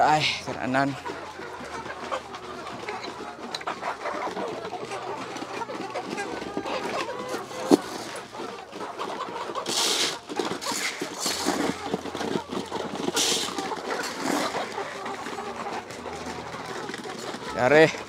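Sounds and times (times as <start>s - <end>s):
chickens clucking and pecking: 0.0s - 18.0s
feed hitting litter: 9.4s - 17.4s.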